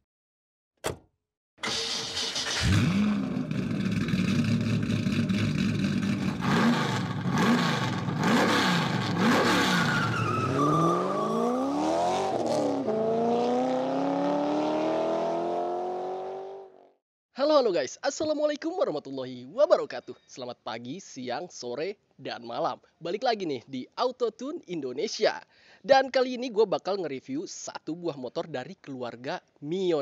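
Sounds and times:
racing engine revving: 2.4s - 16.8s.

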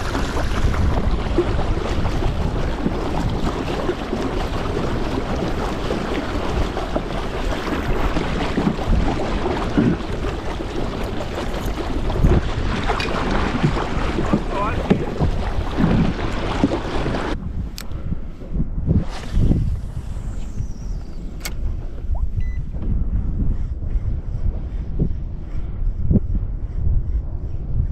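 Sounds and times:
water splashing along kayak hull: 0.0s - 25.7s
wind buffeting microphone: 0.0s - 27.9s.

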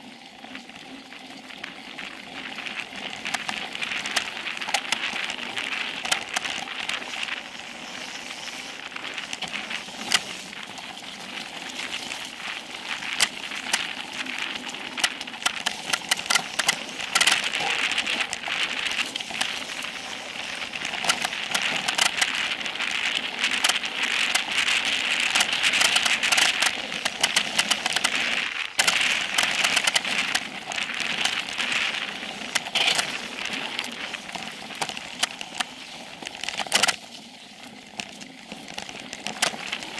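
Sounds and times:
bike and stones clicking and rattling: 0.0s - 39.9s
bike tyres hissing over gravel: 1.6s - 39.9s.

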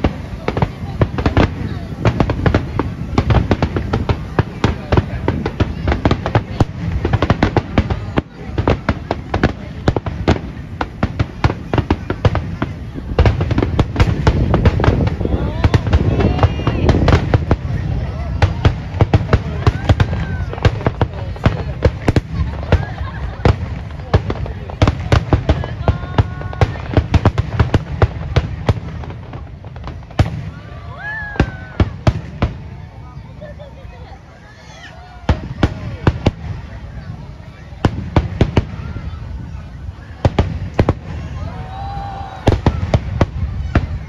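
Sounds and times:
fireworks bursting: 0.0s - 44.0s.

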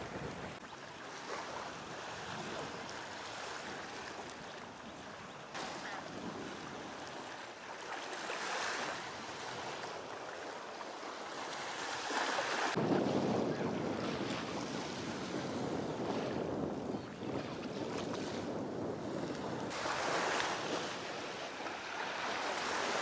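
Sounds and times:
wind on microphone: 0.0s - 0.6s, 1.3s - 7.3s, 12.0s - 23.0s
small waves washing on shore: 0.0s - 23.0s.

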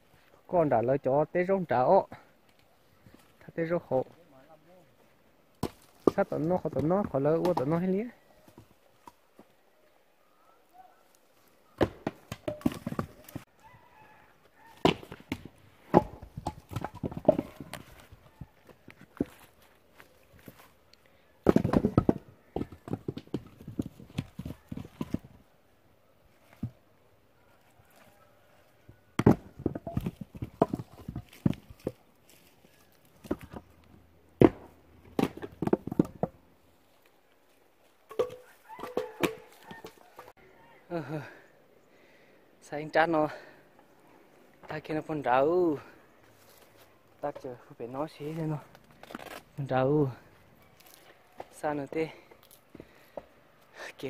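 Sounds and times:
firewood blocks knocking together: 11.8s - 13.4s, 14.8s - 18.0s, 21.4s - 25.3s, 29.2s - 32.0s, 34.4s - 36.4s, 38.1s - 40.3s.

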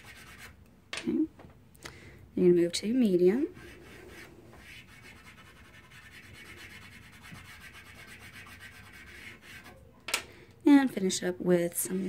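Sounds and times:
chalk pastel scratching on paper: 0.0s - 0.6s, 3.4s - 9.9s, 11.8s - 12.0s.

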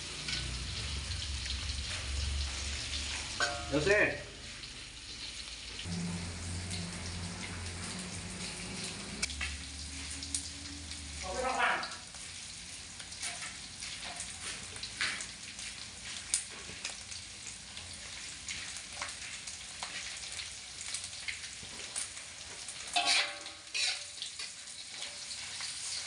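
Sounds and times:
metal spatula scraping wok: 0.0s - 4.0s, 22.7s - 26.0s
food sizzling in hot oil: 0.0s - 26.0s.

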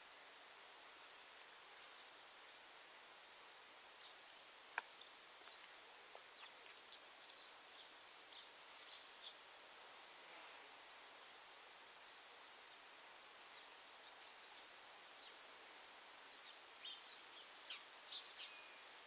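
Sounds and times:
faint bird chirps: 12.6s - 15.4s, 16.2s - 19.0s.

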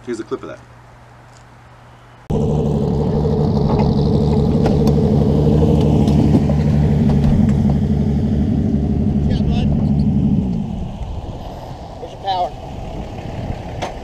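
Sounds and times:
vehicle engine running: 2.3s - 11.7s.

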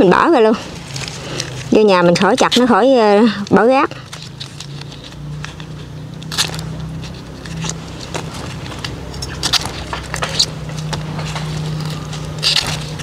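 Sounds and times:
stalks and leaves rustling: 0.0s - 13.0s
low engine hum: 0.1s - 13.0s
knife cutting stalks: 4.2s - 13.0s.

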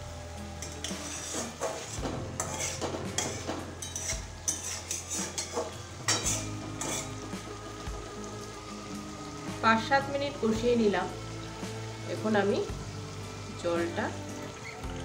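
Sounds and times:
oil sizzling: 0.0s - 15.0s
spatula scraping metal pan: 0.6s - 7.3s.

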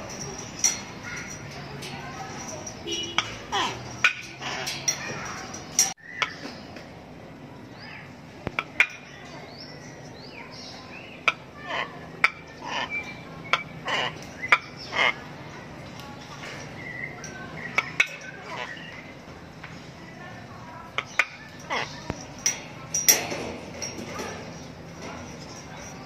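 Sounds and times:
cockatoo clicks and calls: 20.9s - 23.2s.

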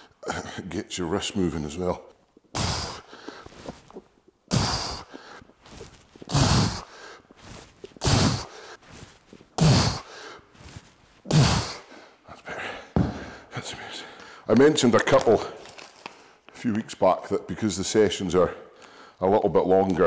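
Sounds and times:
man breathing out hard: 2.6s - 3.7s, 4.5s - 8.8s, 9.6s - 10.5s, 11.3s - 13.5s.

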